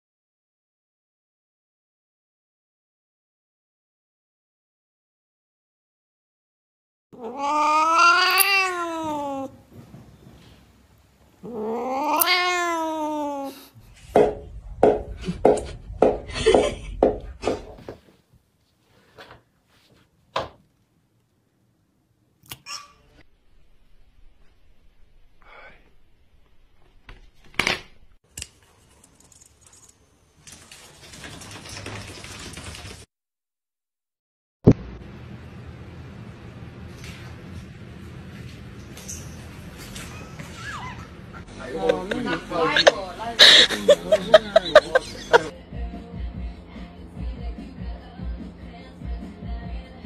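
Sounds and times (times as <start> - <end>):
cat meowing: 7.2 - 9.6, 11.4 - 13.7.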